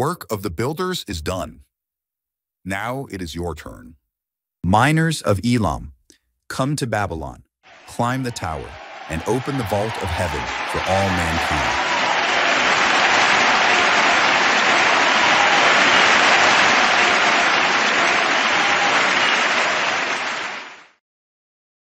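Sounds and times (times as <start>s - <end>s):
crowd cheering and applauding: 7.7s - 21.0s.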